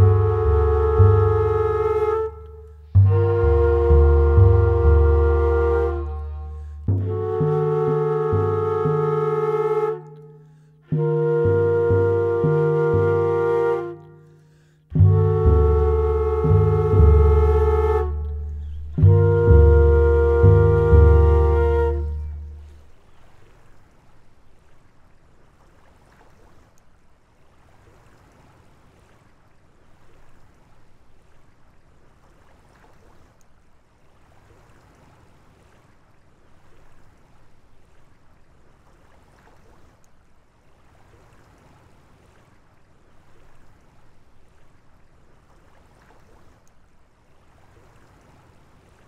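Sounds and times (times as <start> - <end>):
water lapping: 0.0 - 49.0
music chord: 3.0 - 10.0, 15.0 - 22.6.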